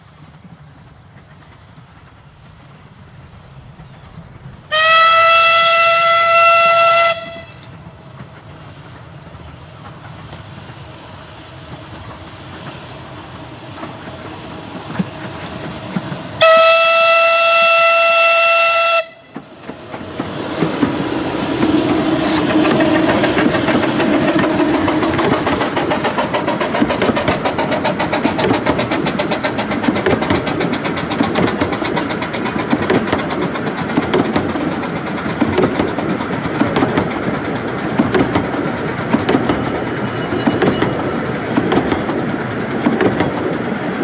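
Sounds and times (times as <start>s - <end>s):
train running: 0.0s - 44.0s
steam locomotive whistle: 4.7s - 7.7s, 16.4s - 19.4s.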